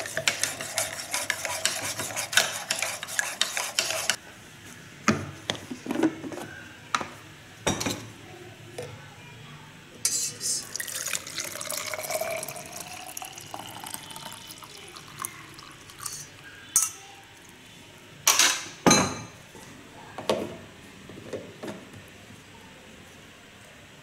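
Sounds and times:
milk pouring into a bottle: 10.6 - 16.1.

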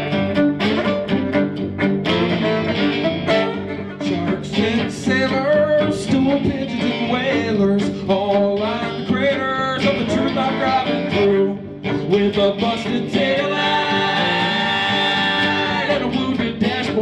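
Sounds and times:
fiddle: 0.0 - 17.0
strummed acoustic guitar: 0.0 - 17.0
upright bass: 0.0 - 17.0
person singing: 2.1 - 17.0.

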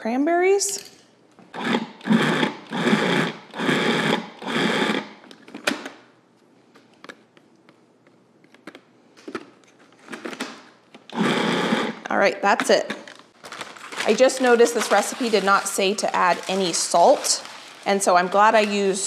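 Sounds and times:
food processor chopping: 1.6 - 5.0, 11.2 - 12.0.

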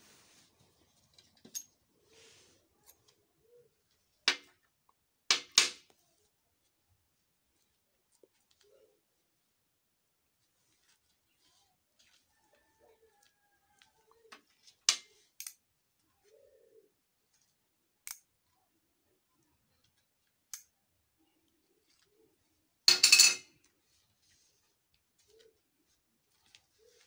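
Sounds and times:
metal washer clattering on a plate: 22.9 - 23.5.

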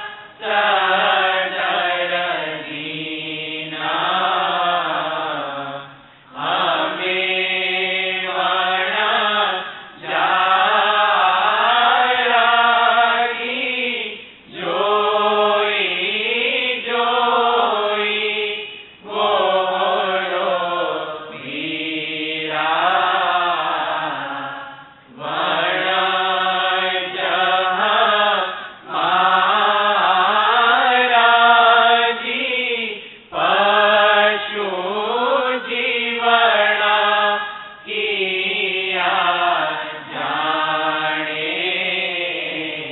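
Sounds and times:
person chanting: 0.0 - 42.9.

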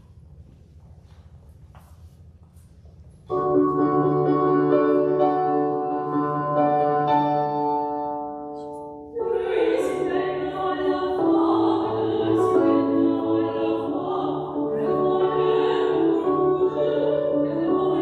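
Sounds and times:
digital piano: 3.3 - 18.0
operatic singing: 9.2 - 18.0.

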